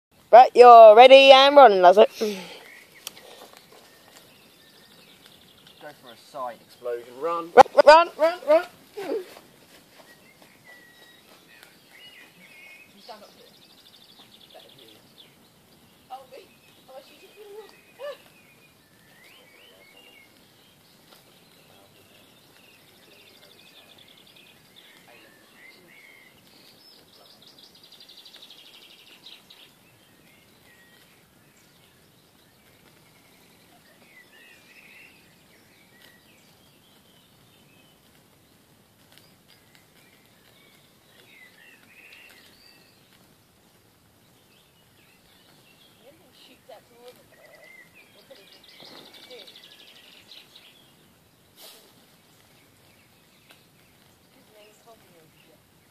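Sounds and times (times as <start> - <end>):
faint outdoor background noise: 0.1 - 55.9
wild birds chirping and singing: 0.2 - 55.9
bird trill: 45.1 - 51.0.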